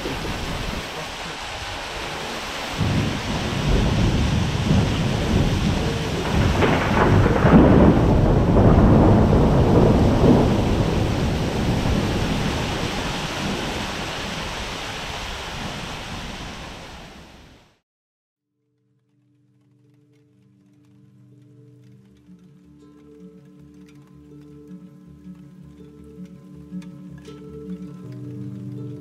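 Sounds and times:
steady rain: 0.0s - 17.8s, 19.0s - 29.0s
thunder rolling: 1.6s - 14.7s.

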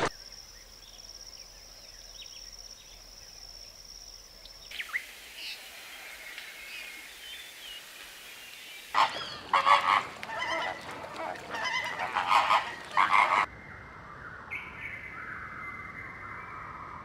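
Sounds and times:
flamingos honking: 8.8s - 13.5s.

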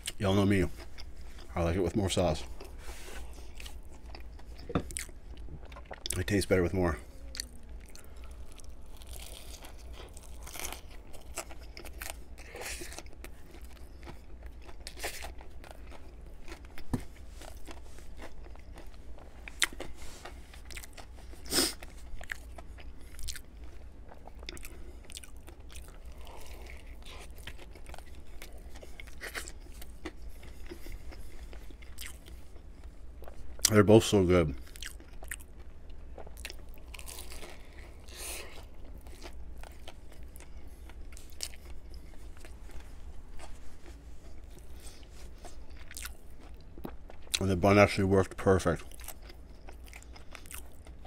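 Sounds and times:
chewing with crunches: 0.0s - 51.0s.

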